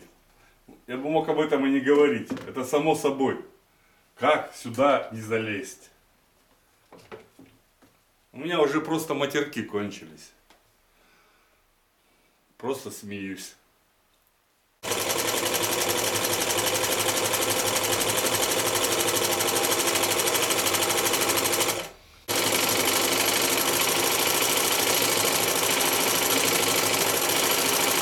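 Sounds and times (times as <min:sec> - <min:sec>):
sewing machine running fast: 0:14.8 - 0:28.0.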